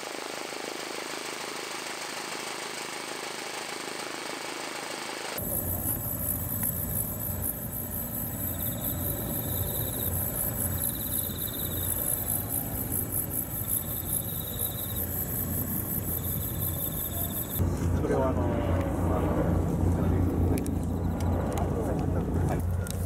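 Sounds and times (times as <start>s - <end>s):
insects chirping: 5.4s - 17.6s, 20.6s - 21.7s
low rumble: 17.6s - 22.9s.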